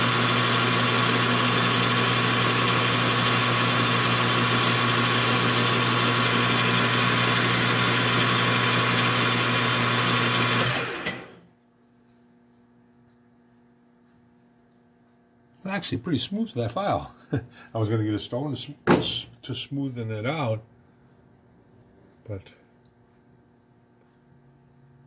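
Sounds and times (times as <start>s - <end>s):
metal lathe humming and whining: 0.0s - 11.4s.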